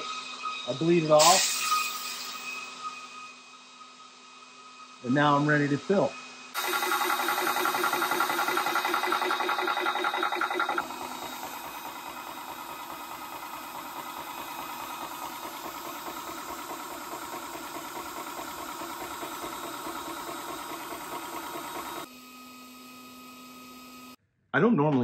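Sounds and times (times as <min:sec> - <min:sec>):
air compressor pump pulsing: 0:00.0 - 0:03.3, 0:05.2 - 0:22.1
air hissing: 0:00.7 - 0:03.2, 0:06.6 - 0:22.1
fan hum: 0:05.6 - 0:22.1.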